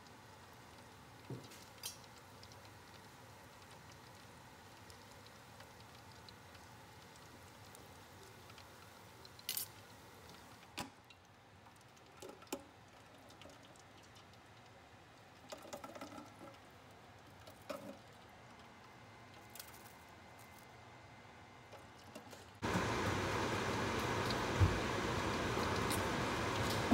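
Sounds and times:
hot oil crackling and popping: 0.0 - 20.6, 22.6 - 26.9
loud steady hiss: 22.6 - 26.9.

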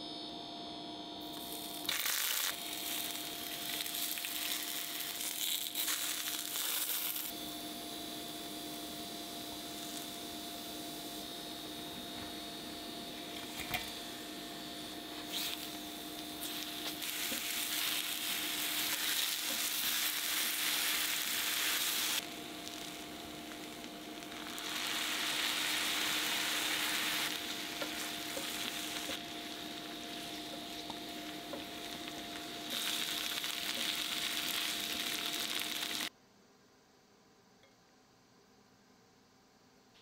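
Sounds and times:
faint steady hum: 0.0 - 40.0
food sizzling in butter: 1.3 - 7.3, 15.2 - 36.1.

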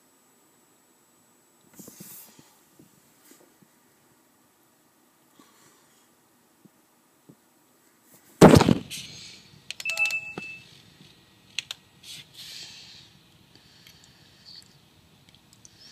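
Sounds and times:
loud thump: 8.4 - 8.9
short electronic beep: 9.9 - 10.7.

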